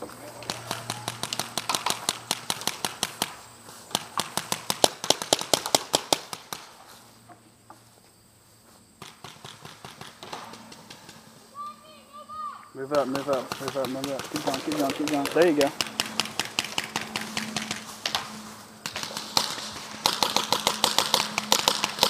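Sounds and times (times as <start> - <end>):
paintball markers firing: 0.4 - 6.7, 9.0 - 11.0, 13.0 - 22.0.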